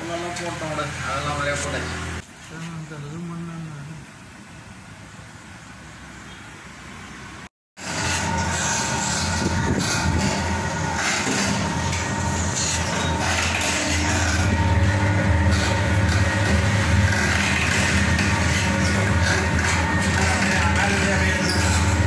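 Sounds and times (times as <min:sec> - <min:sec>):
oil press machine grinding: 0:07.8 - 0:22.0.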